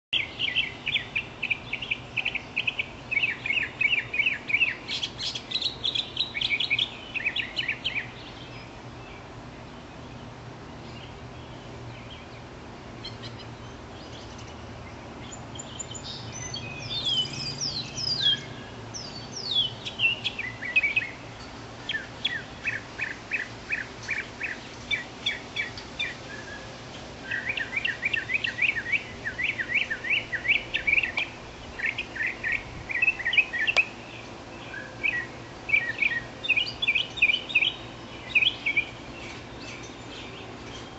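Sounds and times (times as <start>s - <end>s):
songbird singing: 0.1s - 40.9s.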